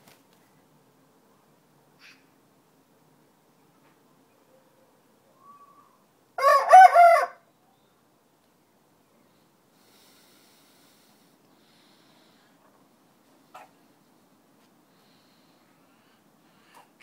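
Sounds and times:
rooster crowing: 0:06.4 - 0:07.4.

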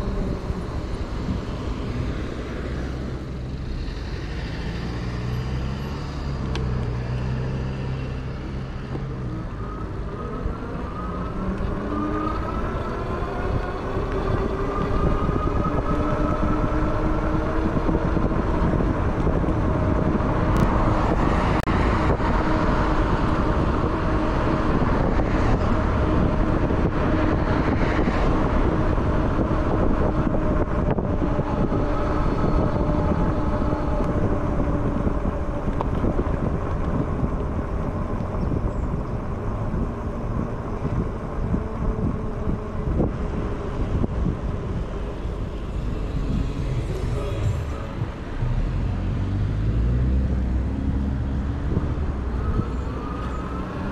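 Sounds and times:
road traffic: 0:00.0 - 0:53.9
wind on microphone: 0:00.0 - 0:53.9
steady motor whine: 0:39.6 - 0:49.8.

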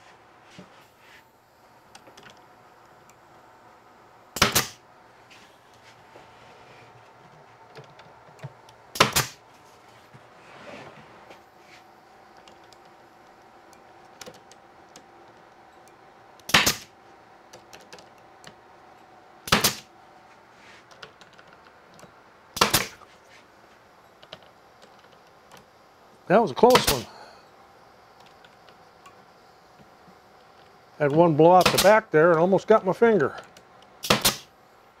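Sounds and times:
pneumatic nail gun shots: 0:04.4 - 0:04.8, 0:08.9 - 0:09.4, 0:16.5 - 0:16.9, 0:19.5 - 0:19.9, 0:22.6 - 0:23.0, 0:26.7 - 0:27.1, 0:31.6 - 0:31.9, 0:34.0 - 0:34.5.

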